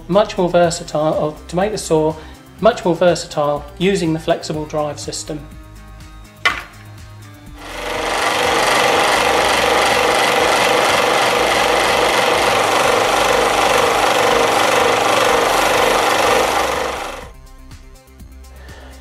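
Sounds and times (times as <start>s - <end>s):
rotary tool sanding wood: 7.6s - 17.3s.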